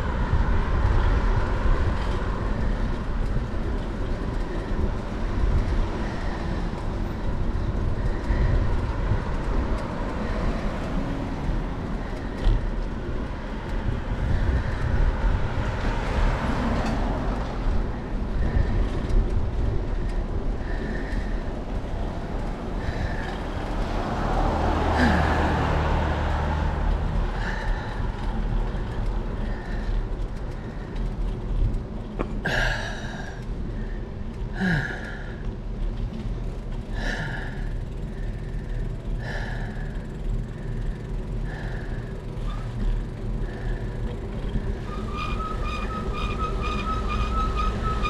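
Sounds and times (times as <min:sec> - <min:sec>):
road and wind rumble: 0:00.0 - 0:48.0
bicycle squeak: 0:42.4 - 0:43.0, 0:44.5 - 0:48.0.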